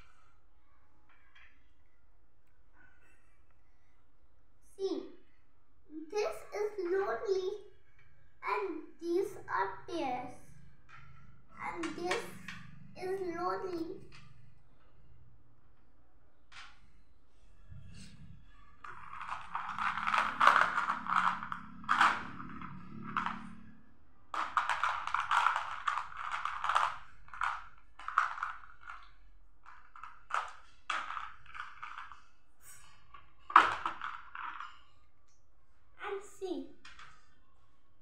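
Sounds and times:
plastic beads rattling in a tub: 0:18.8 - 0:23.6, 0:24.3 - 0:35.1, 0:36.8 - 0:37.4.

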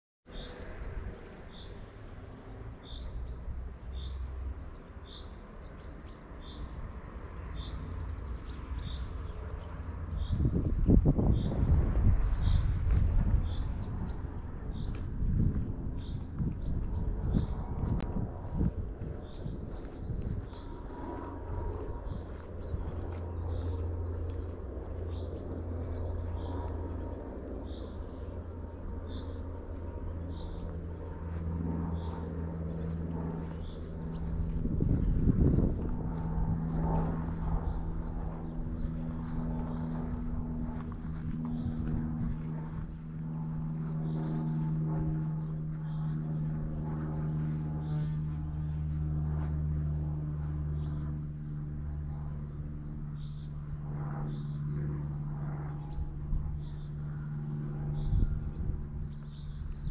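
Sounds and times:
low motor hum: 0:00.3 - 0:59.9
steady low rumble: 0:00.3 - 0:59.9.

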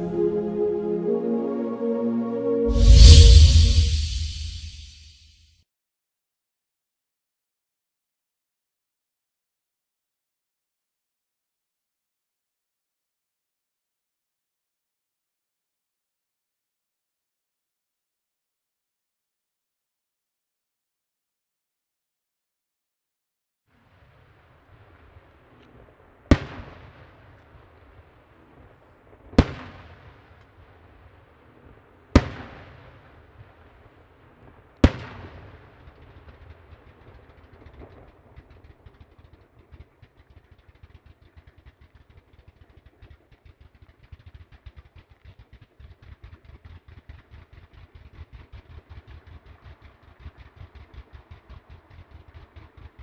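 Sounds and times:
rapid firework pops and crackle: 0:23.9 - 0:53.0.

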